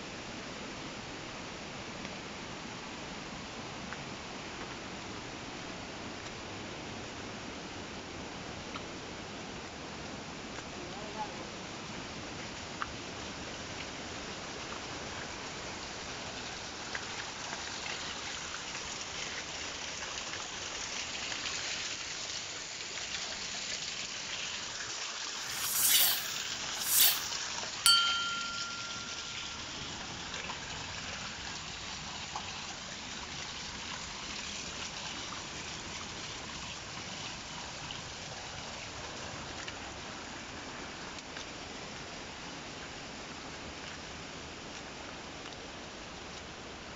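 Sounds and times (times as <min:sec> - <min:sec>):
short bell-like chime: 0:25.4 - 0:27.3, 0:27.9 - 0:29.9.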